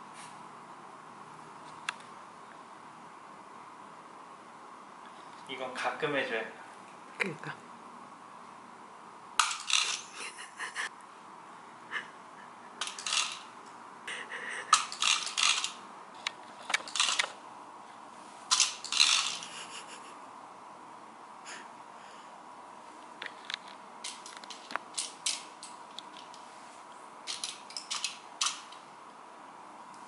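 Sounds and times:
plastic toy rattling on tiles: 9.4 - 10.2, 12.8 - 13.5, 14.7 - 15.8, 16.6 - 17.4, 18.5 - 19.6, 24.0 - 26.3, 27.3 - 28.8.

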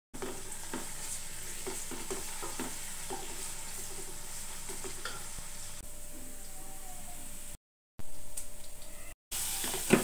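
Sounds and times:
wooden spatula scraping: 0.2 - 5.2
onions sizzling in hot oil: 0.2 - 5.8, 9.3 - 10.0.

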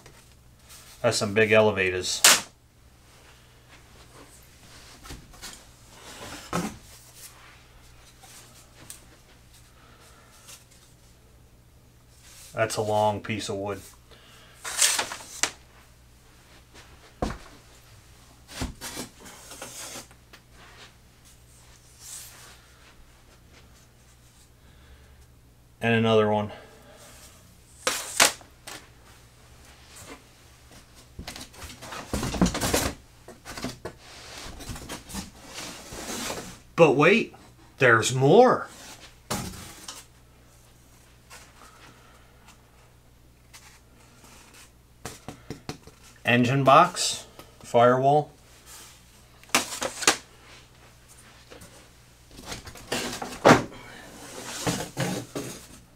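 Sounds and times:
steady low hum: 0.0 - 55.9
wooden sheets scraping and knocking: 52.4 - 55.9.

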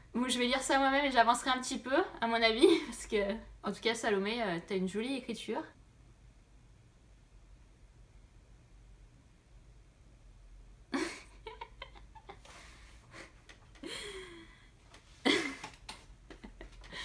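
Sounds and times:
woman laughing softly: 10.9 - 17.0.

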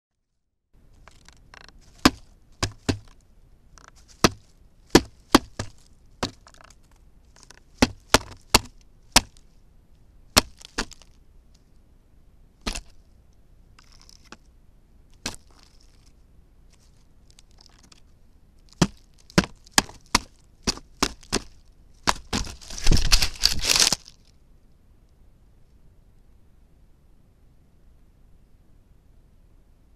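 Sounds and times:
woodpecker knocking on camera: 1.1 - 3.2, 3.8 - 9.4, 10.4 - 11.2, 18.7 - 23.3
bird scraping against camera: 20.8 - 24.0.

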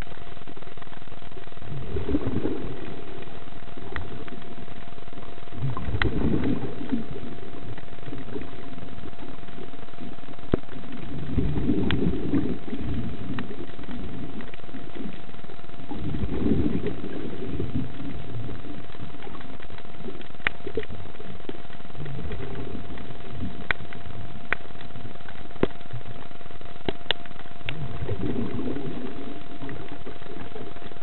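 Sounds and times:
diver exhaling bubbles: 1.7 - 4.0, 5.6 - 8.6, 10.9 - 15.2, 15.8 - 18.9, 22.0 - 23.7, 27.7 - 30.8.

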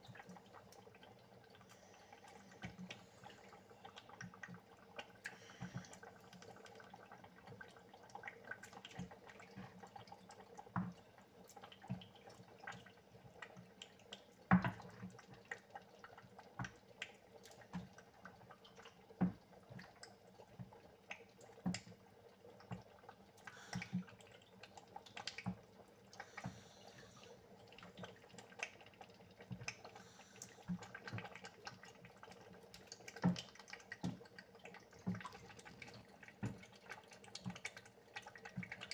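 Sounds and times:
faint steady hum: 0.0 - 38.9
stew bubbles popping: 11.6 - 38.9.

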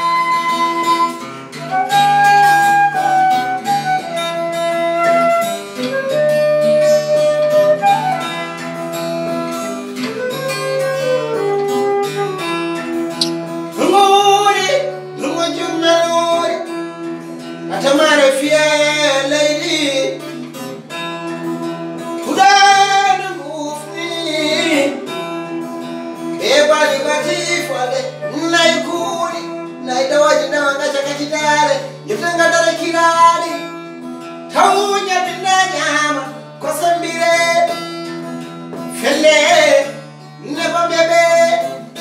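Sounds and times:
plucked acoustic guitar: 0.0 - 42.0
person singing: 13.2 - 16.7, 17.7 - 20.3, 22.1 - 25.2, 38.9 - 42.0.

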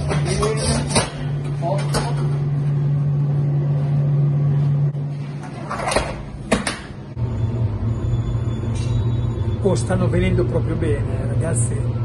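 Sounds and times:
oven humming: 0.0 - 12.0.

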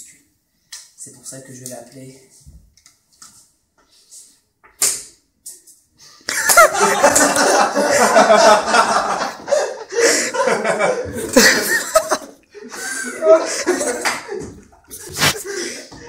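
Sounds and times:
people laughing heartily: 6.3 - 16.0.

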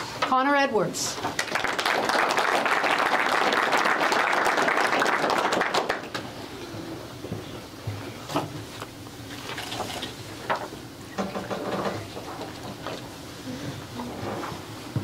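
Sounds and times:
audience applauding: 1.4 - 6.2.

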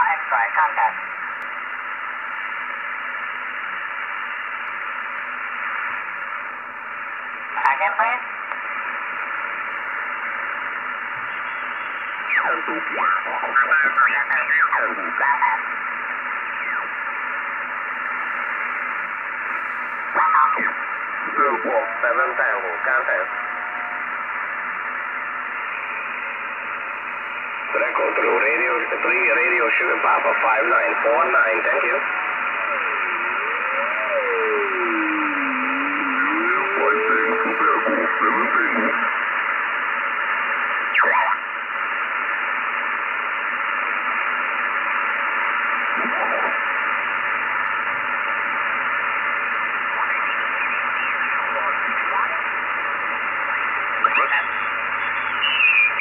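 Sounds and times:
shortwave radio band noise hiss: 0.0 - 56.0
gliding garbled radio tones: 10.2 - 41.6, 45.8 - 46.8, 48.6 - 56.0
radio whistle sliding in pitch: 21.6 - 24.2, 31.1 - 38.4.

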